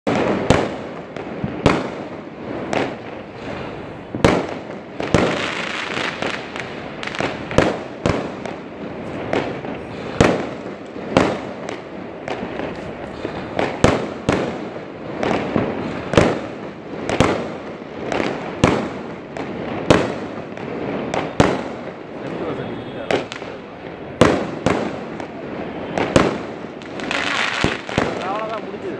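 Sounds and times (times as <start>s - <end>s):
fireworks crackling: 0.0s - 28.9s
firework bangs: 0.1s - 28.9s.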